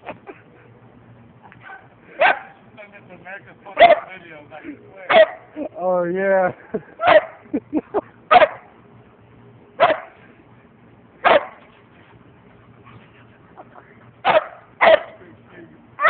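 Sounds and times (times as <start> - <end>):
dog barking: 1.6 - 2.6, 3.8 - 4.1, 5.1 - 5.5, 7.0 - 7.4, 8.3 - 8.7, 9.8 - 10.2, 11.2 - 11.6, 14.2 - 15.2.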